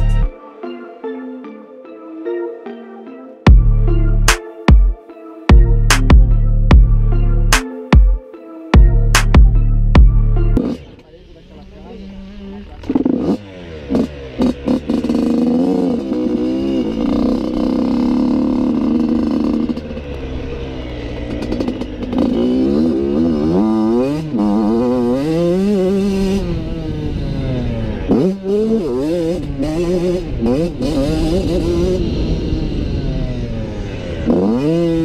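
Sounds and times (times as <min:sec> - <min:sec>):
motocross bike engine revving: 0:10.6 - 0:35.0.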